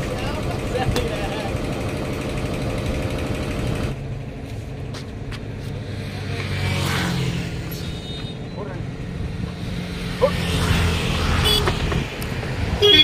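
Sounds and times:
low motor hum: 0.0 - 7.3.

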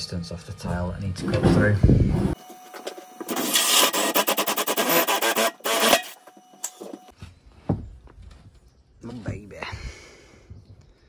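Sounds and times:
cordless drill boring through wood: 2.4 - 7.0.

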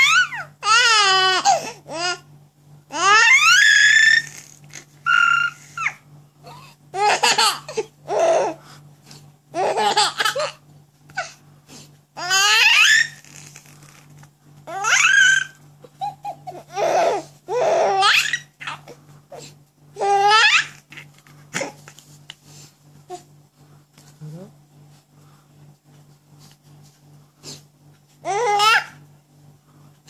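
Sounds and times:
baby laughing and squealing: 3.0 - 8.5, 12.2 - 13.7, 14.7 - 18.9, 20.0 - 21.8.

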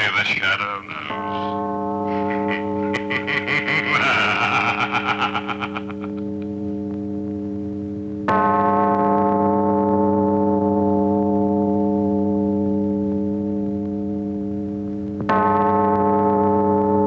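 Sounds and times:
held low chord: 0.0 - 17.0
gong-like chord ringing: 1.0 - 4.5.

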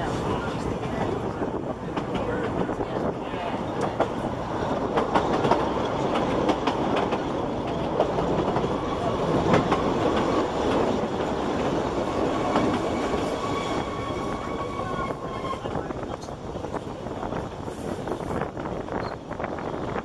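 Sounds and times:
train carriages rumbling on track: 0.0 - 20.0
wheels clicking over rail joints: 3.7 - 13.2.

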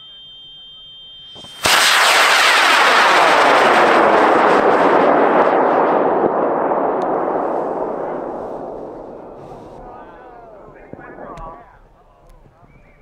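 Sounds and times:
rocket motor roaring: 1.5 - 11.6.

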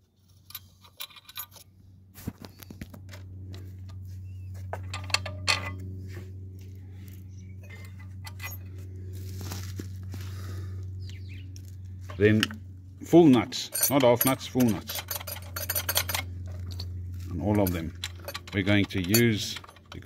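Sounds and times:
steady low hum: 0.0 - 20.0
washers and nuts clinking: 0.4 - 1.7, 4.8 - 5.8, 7.6 - 8.8, 12.0 - 20.0.

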